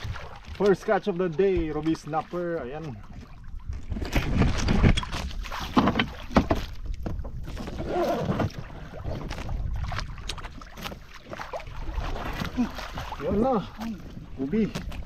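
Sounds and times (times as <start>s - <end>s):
water splashing against boat hull: 0.0s - 15.0s
wind buffeting microphone: 6.1s - 15.0s.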